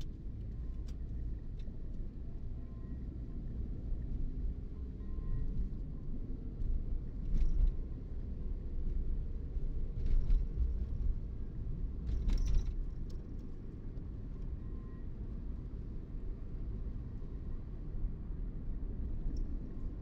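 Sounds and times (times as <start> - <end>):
car road and engine rumble: 0.0 - 20.0.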